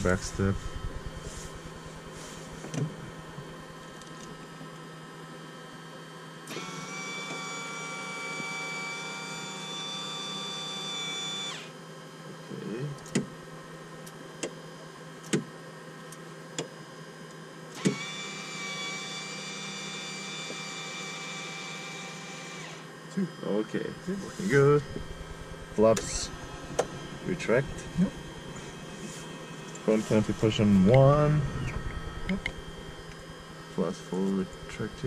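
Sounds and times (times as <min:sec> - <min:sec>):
electric actuator motor whining: 0:00.0 - 0:03.5, 0:17.8 - 0:22.9, 0:24.2 - 0:33.6
low electrical hum: 0:00.0 - 0:06.5, 0:07.6 - 0:17.8, 0:21.0 - 0:35.0.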